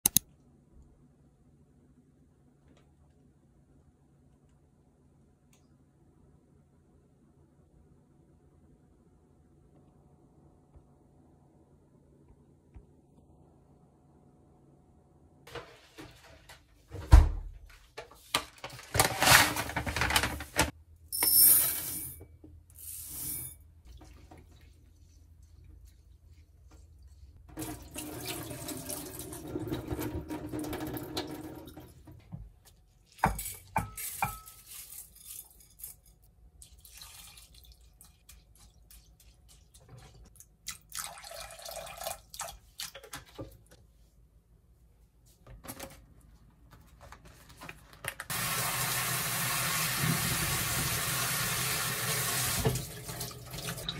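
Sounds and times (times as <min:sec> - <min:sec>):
rinse water poured into sink: 0:27.5 - 0:32.1, 0:48.3 - 0:53.9
water running into sink: 0:27.5 - 0:32.2, 0:48.3 - 0:53.9.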